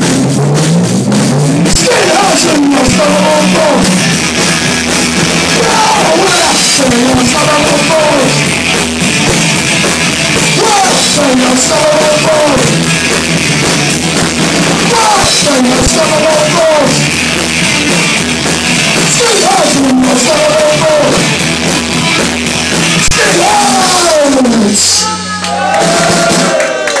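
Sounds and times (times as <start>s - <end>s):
live punk band playing: 0.0s - 27.0s
person singing: 1.6s - 4.0s, 5.5s - 8.5s, 10.5s - 12.9s, 14.8s - 17.2s, 19.0s - 21.3s, 23.0s - 26.5s.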